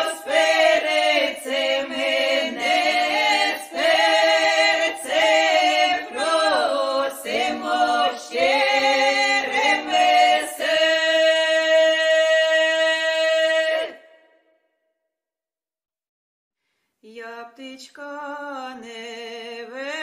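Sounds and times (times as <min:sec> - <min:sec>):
unaccompanied choir singing: 0:00.0 - 0:14.1.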